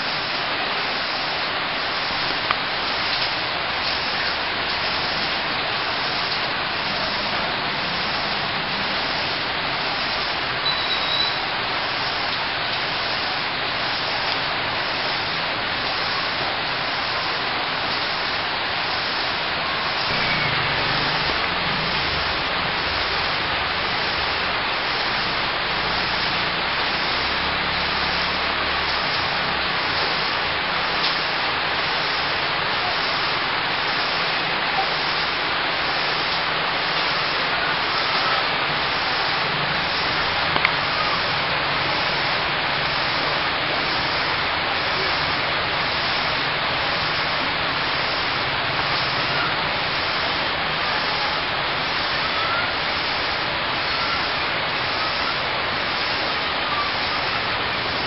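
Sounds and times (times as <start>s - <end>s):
rain falling on foliage: 0.0s - 58.0s
raindrop ticks: 40.4s - 40.8s.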